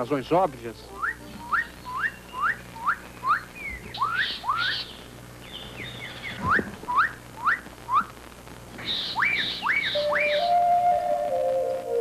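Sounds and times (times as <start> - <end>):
bird sharp rising whistles: 1.0 - 4.9, 8.8 - 10.8
harsh scratchy bird notes: 8.8 - 10.8.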